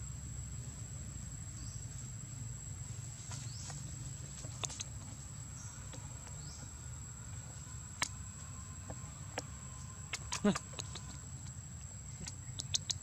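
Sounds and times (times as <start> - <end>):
high-pitched insect drone: 4.6 - 13.0
sharp clicks: 12.2 - 13.0.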